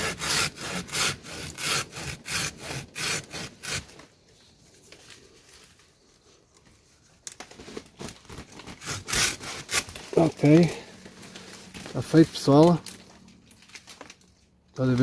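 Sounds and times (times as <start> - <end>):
hand saw cutting trunk: 0.0 - 4.0, 8.0 - 12.9
faint handling sounds: 9.9 - 15.0.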